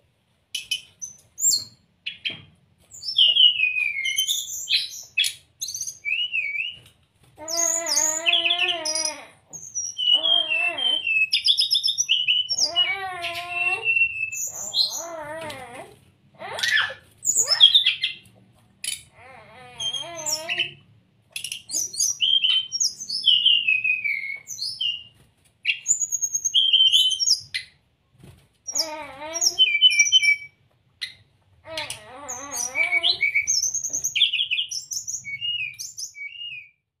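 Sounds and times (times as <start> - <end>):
bird singing whistled notes: 3.0 - 6.8, 21.7 - 25.1, 32.7 - 36.8.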